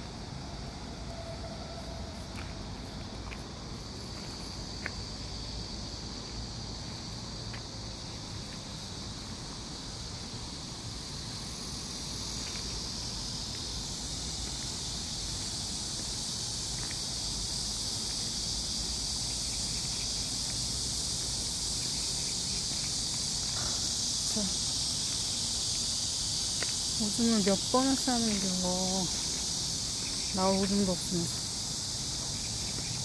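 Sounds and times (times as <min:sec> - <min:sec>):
insects chirping in grass: 0:00.0 - 0:33.0
faint footsteps: 0:02.0 - 0:08.9, 0:11.9 - 0:19.4, 0:26.5 - 0:33.0.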